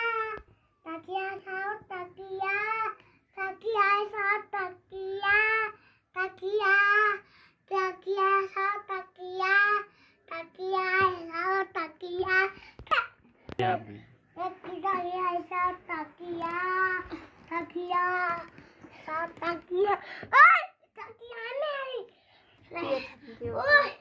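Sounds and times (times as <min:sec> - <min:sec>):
boy breathing: 0:07.2 - 0:07.7, 0:09.9 - 0:10.3, 0:17.0 - 0:17.5, 0:18.4 - 0:19.2, 0:19.9 - 0:20.4, 0:22.0 - 0:23.6.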